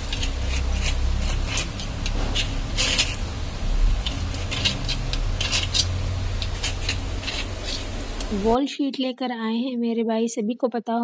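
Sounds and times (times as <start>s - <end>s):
metal blade scraping paint: 0.0s - 3.3s, 4.0s - 8.0s
low steady hum: 0.0s - 8.7s.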